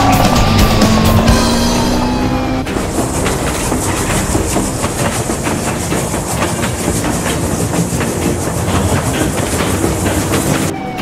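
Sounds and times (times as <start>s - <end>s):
train rumbling on track: 0.0s - 11.0s
wheels clacking over rails: 0.0s - 11.0s.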